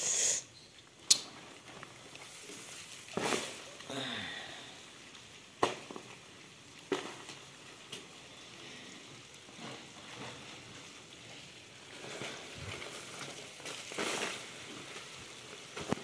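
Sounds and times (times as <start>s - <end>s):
debris pattering into basin: 1.2s - 3.9s, 5.4s - 8.4s, 9.2s - 16.0s
cardboard egg crates rustling: 6.9s - 16.0s.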